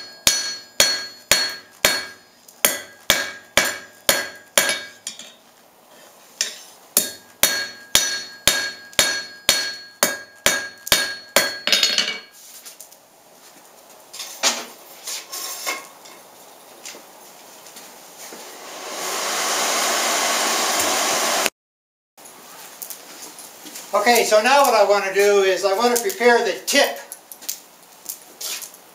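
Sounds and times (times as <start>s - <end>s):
hammer ringing on anvil: 0.0s - 5.4s, 7.0s - 12.3s
hammer clanking set down on anvil: 11.5s - 12.4s.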